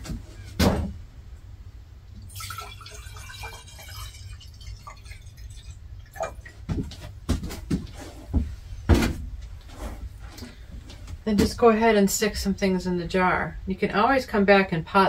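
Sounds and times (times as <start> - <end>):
water pouring into glass jar: 2.2 - 6.6.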